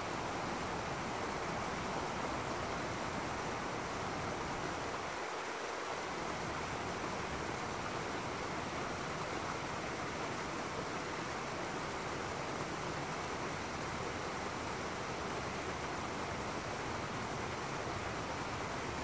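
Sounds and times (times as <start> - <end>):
stream rushing over rocks: 0.0 - 19.0.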